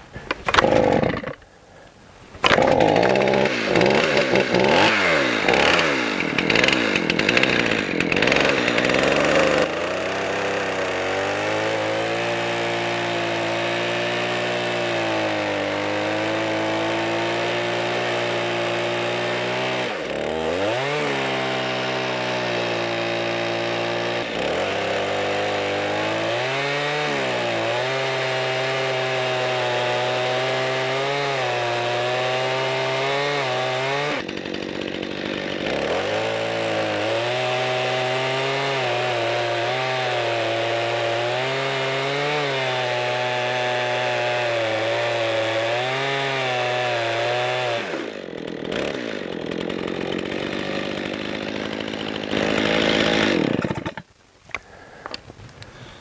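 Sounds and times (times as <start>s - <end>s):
chainsaw cutting log: 0.0s - 1.6s, 2.3s - 56.0s.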